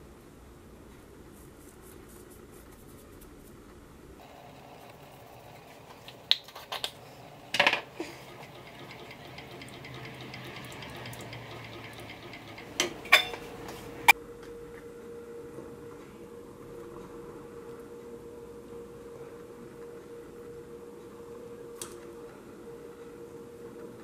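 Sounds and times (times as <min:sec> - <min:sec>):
spoon knocking against metal pot: 0:07.6 - 0:14.1.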